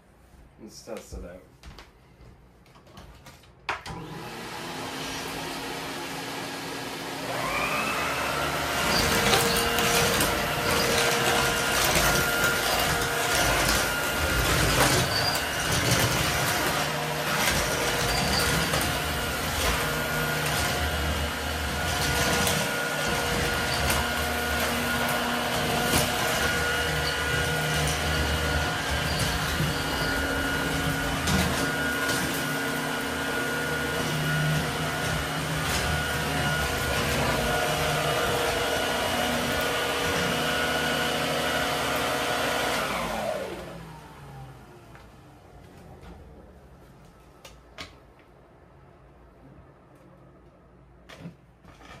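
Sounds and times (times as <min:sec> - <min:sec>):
vacuum cleaner motor running: 0:03.8 - 0:46.3.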